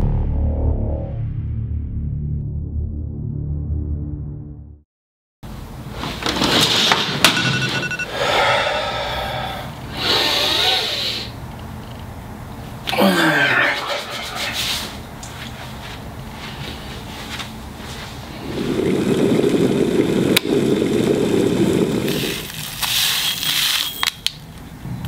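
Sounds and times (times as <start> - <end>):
man groaning: 12.9 - 14.6.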